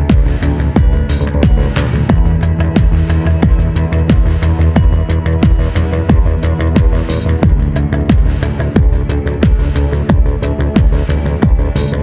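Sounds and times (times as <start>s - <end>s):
held synth notes: 0.0s - 12.0s
deep drum hits: 1.4s - 4.3s.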